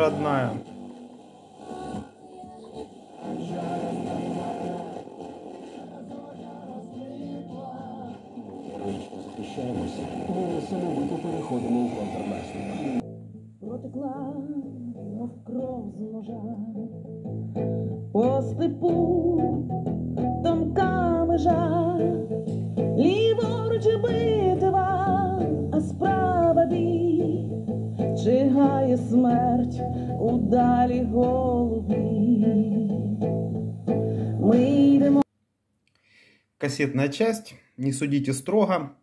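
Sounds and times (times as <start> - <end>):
song with singing and guitar on radio: 0.0 - 35.3.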